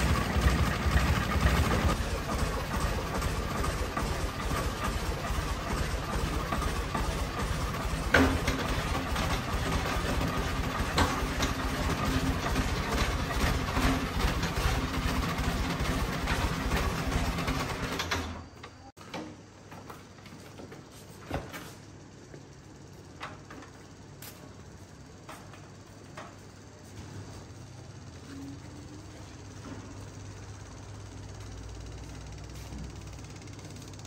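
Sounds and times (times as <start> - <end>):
tractor diesel engine running: 0.0 - 18.5.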